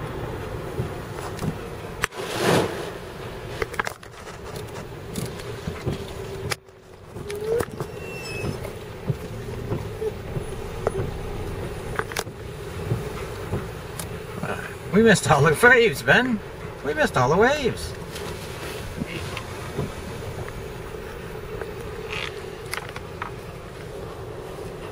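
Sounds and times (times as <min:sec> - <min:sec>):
windscreen wipers sweeping: 0:00.0 - 0:24.9
sea spray rushing over truck: 0:00.5 - 0:03.8, 0:08.5 - 0:24.9
truck engine running: 0:03.0 - 0:24.9.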